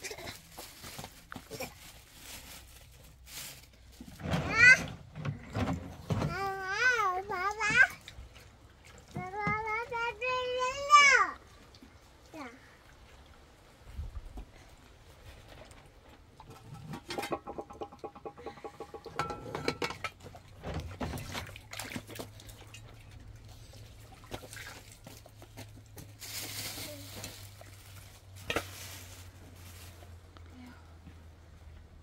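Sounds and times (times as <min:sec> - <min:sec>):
metal dishes clinking and scraping: 0:16.5 - 0:21.1.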